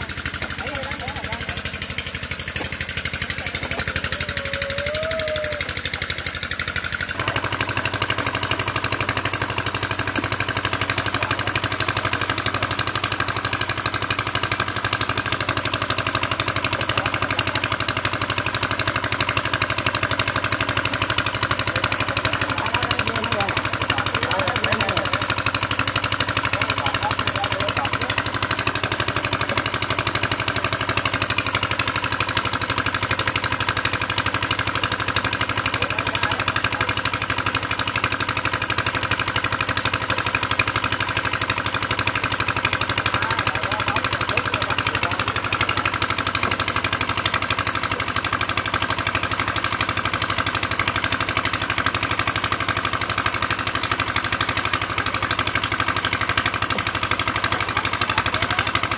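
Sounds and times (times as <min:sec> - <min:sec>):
small engine idling: 0:00.0 - 0:58.9.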